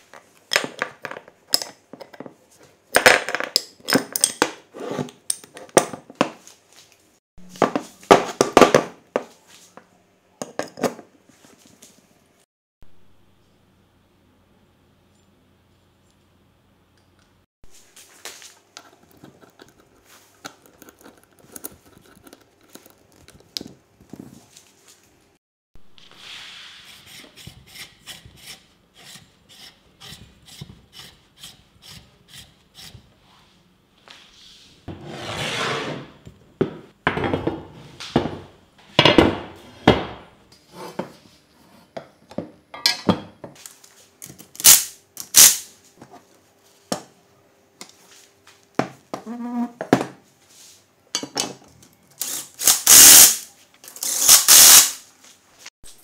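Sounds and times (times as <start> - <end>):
sharp noisy bursts: 52.6 - 53.4, 54.2 - 55.0.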